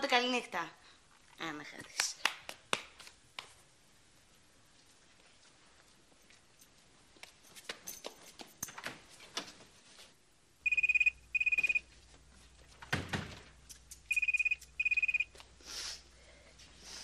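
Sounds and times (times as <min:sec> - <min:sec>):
telephone ringing: 0:10.6 - 0:11.9, 0:14.1 - 0:15.4.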